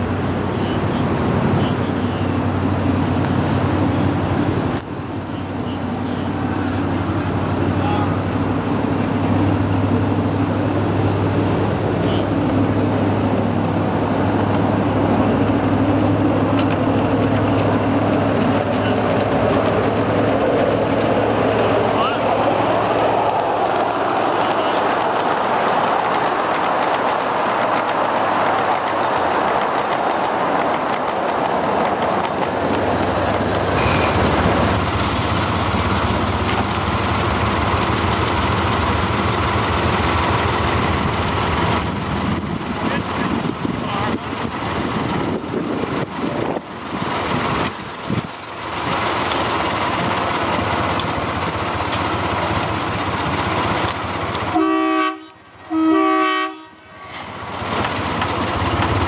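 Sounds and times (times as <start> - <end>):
steady rushing noise: 0.0 - 54.6
miniature train running on track: 4.1 - 59.0
wind on microphone: 41.9 - 48.3
train horn toots: 54.5 - 57.2.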